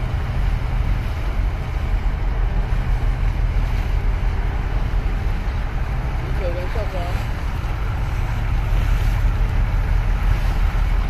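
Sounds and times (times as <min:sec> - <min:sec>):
waves splashing against concrete: 0:00.0 - 0:11.0
wind rumbling on microphone: 0:00.0 - 0:11.0.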